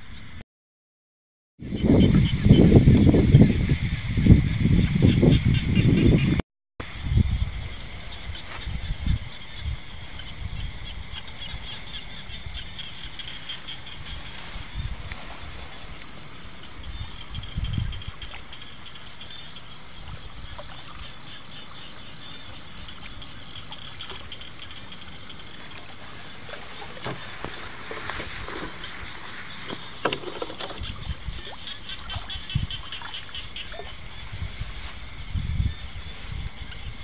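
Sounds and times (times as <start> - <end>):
night insects trilling: 6.8 - 37.0
low thumps and rustles: 25.6 - 31.4.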